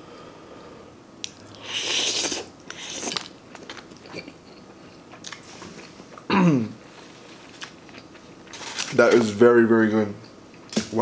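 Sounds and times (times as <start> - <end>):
person chewing noodles: 1.2 - 6.0, 7.4 - 8.6
noisy mouthful of noodles: 1.5 - 3.3.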